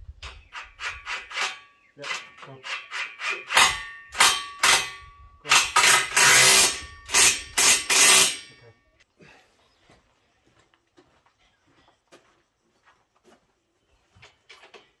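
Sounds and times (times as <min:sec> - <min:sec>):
hand tool rasping: 0:00.2 - 0:08.7.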